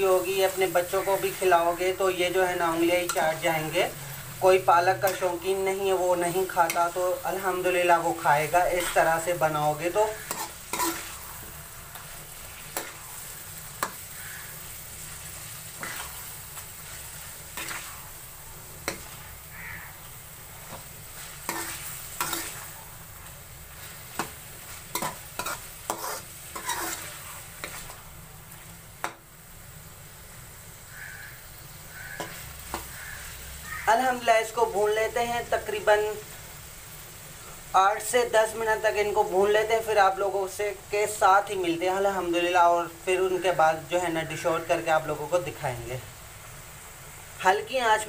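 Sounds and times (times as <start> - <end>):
food sizzling in a pan: 0.0 - 48.0
metal spoon scraping pan: 8.5 - 13.2, 15.2 - 16.3, 16.9 - 18.1, 20.6 - 22.8, 23.8 - 28.0, 31.9 - 33.4.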